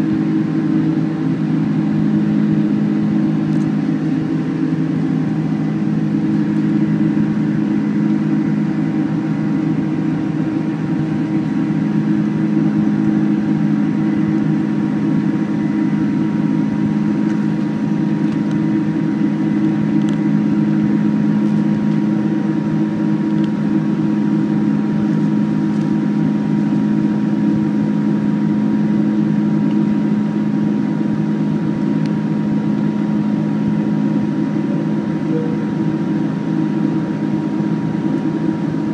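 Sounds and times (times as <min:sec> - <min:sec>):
airplane cabin engine hum: 0:00.0 - 0:38.9
faint high steady tones: 0:34.7 - 0:36.0.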